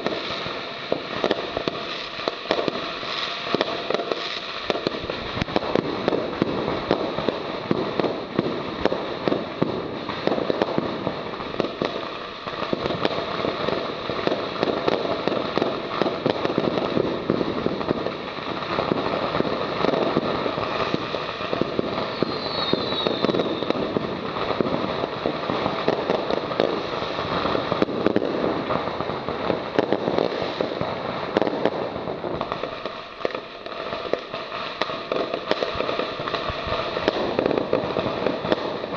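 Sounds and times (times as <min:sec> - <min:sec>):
fireworks crackling: 0:00.0 - 0:38.9.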